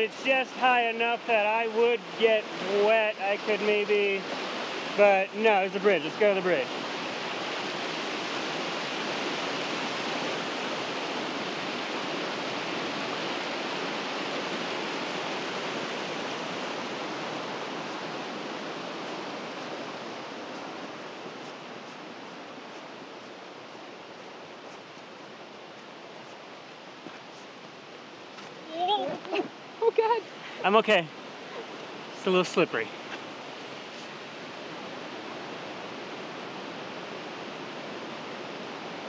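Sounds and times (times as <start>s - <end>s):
river water rushing: 0.0s - 39.0s.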